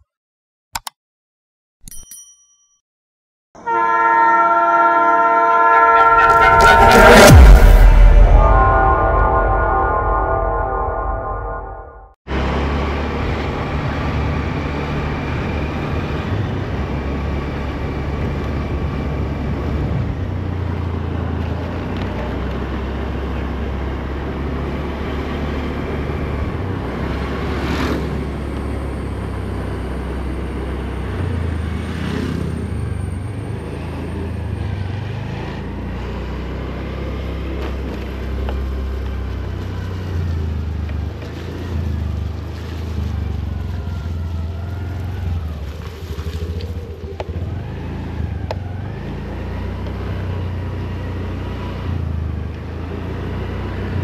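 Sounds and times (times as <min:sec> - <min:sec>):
train rumbling past: 0:05.2 - 0:13.8
low hum: 0:06.0 - 0:12.2.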